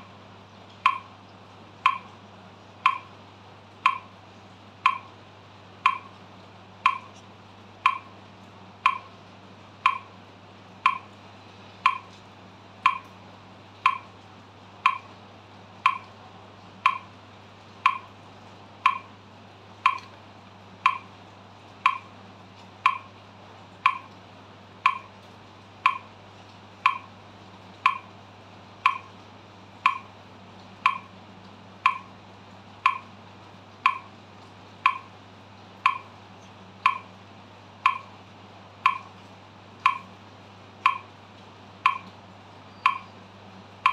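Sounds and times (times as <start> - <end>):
metronome clicking: 0.8 - 1.1, 1.8 - 2.2, 2.8 - 3.1, 3.8 - 4.1, 4.8 - 5.1, 5.8 - 6.2, 6.8 - 7.2, 7.8 - 8.1, 8.8 - 9.1, 9.8 - 10.1, 10.8 - 11.2, 11.8 - 12.2, 12.8 - 13.2, 13.8 - 14.1, 14.8 - 15.1, 15.8 - 16.1, 16.8 - 17.1, 17.8 - 18.1, 18.8 - 19.1, 19.8 - 20.2, 20.8 - 21.1, 21.8 - 22.1, 22.8 - 23.1, 23.8 - 24.1, 24.8 - 25.1, 25.8 - 26.1, 26.8 - 27.1, 27.8 - 28.1, 28.8 - 29.2, 29.8 - 30.2, 30.8 - 31.1, 31.8 - 32.1, 32.8 - 33.1, 33.8 - 34.1, 34.8 - 35.2, 35.8 - 36.2, 36.8 - 37.2, 37.8 - 38.2, 38.8 - 39.2, 39.8 - 40.1, 40.8 - 41.1, 41.8 - 42.2, 42.8 - 43.2.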